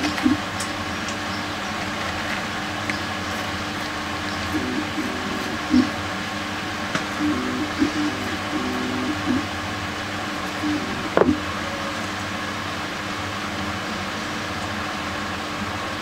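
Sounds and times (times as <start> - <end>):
mechanical hum: 0.0 - 16.0.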